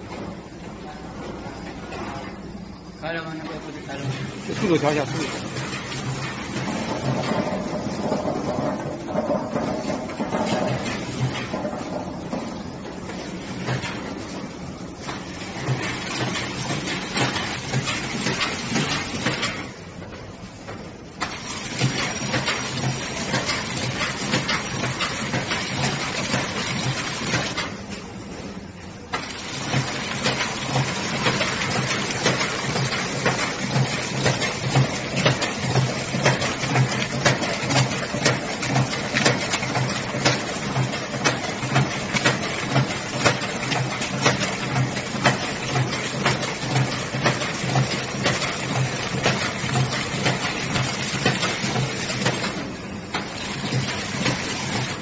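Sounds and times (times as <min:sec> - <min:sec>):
packaging machine clattering: 0:15.0 - 0:19.7, 0:21.2 - 0:27.8, 0:29.1 - 0:55.0.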